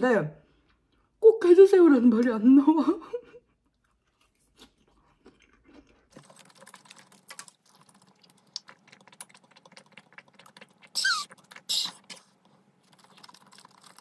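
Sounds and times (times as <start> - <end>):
chewing crisp lettuce: 3.8 - 14.0
wet mouth clicks: 8.4 - 12.3.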